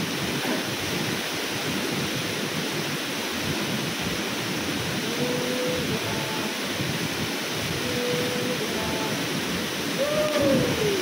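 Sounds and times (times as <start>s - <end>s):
waterfall pouring into pool: 0.0s - 11.0s.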